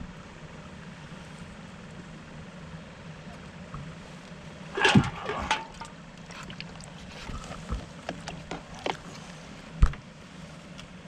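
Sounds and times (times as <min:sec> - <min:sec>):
steady low hum: 0:00.0 - 0:11.0
splash with a rattle: 0:04.7 - 0:07.1.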